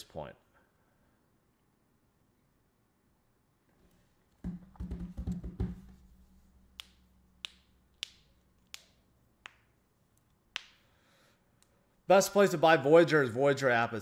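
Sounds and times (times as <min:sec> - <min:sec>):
dull knocks on desk: 0:04.4 - 0:06.0.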